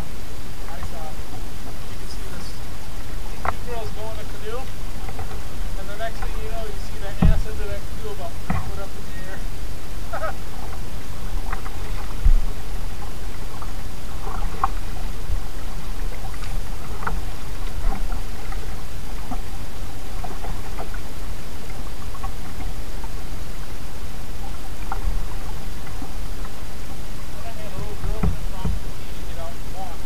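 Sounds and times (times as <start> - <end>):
low rumble of water and wind: 0.0 - 30.0
paddle splashes and drips: 0.0 - 30.0
low knocks: 4.6 - 8.9, 10.6 - 12.8, 27.7 - 28.9.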